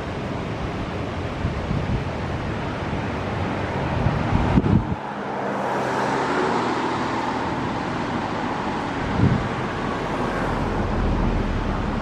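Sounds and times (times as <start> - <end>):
wind rumbling on microphone: 0.0 - 12.0
car passing: 2.5 - 12.0.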